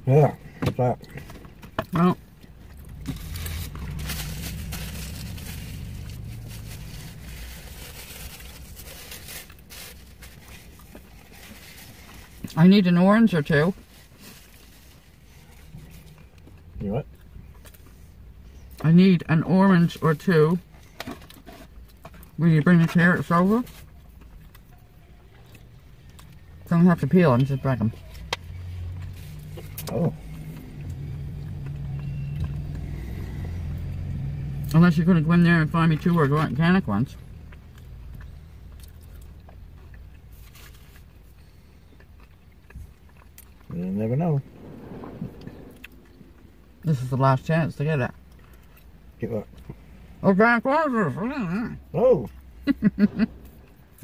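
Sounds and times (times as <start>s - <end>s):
vehicle engine humming: 0.0s - 54.0s
low rumble: 2.3s - 12.4s, 42.6s - 50.2s, 51.8s - 54.0s
food packaging crinkling: 3.0s - 12.5s.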